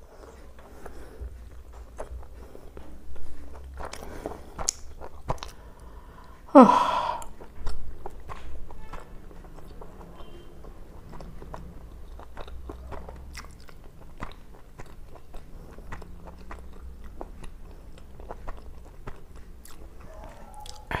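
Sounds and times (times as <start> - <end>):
person chewing food: 0.0 - 21.0
mouth clicks and smacks: 0.5 - 6.4, 7.2 - 21.0.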